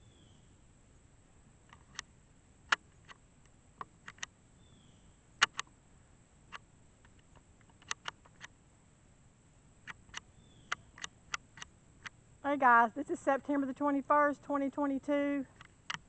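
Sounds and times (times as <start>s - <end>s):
sharp clicks and ticks: 3.8s - 4.3s, 5.4s - 5.7s, 6.5s - 8.5s, 9.8s - 12.2s, 13.1s - 16.0s.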